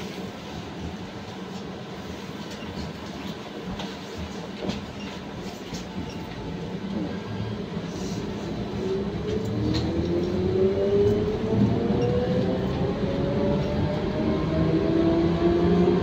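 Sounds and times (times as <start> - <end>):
bus cabin low rumble: 0.0 - 16.0.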